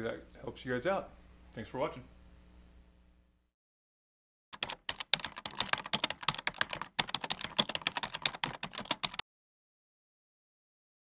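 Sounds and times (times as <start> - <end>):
keyboard typing: 4.6 - 9.2.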